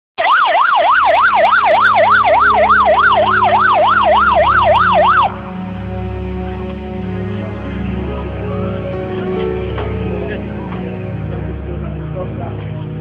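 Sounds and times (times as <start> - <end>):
electronic siren yelping: 0.2 - 5.4.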